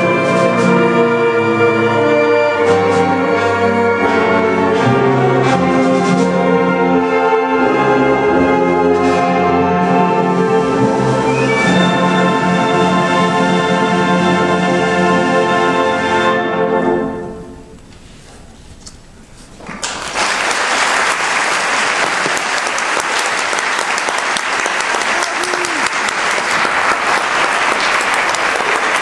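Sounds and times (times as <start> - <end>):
concert band playing: 0.0 - 17.7.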